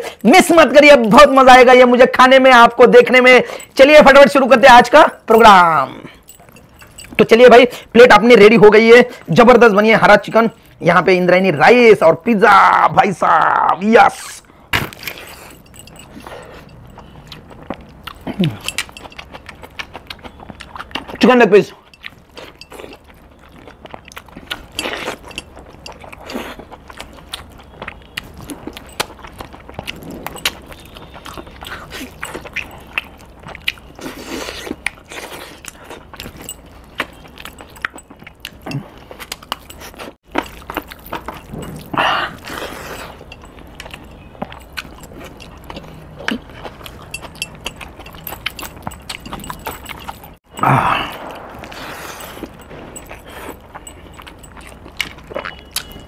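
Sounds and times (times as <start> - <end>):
person chewing food: 5.5 - 7.9, 14.5 - 56.0.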